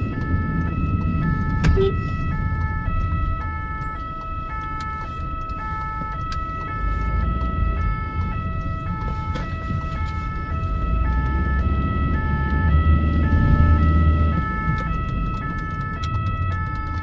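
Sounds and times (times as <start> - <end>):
engine and road rumble: 0.0 - 17.0
two-tone ambulance siren: 0.0 - 17.0.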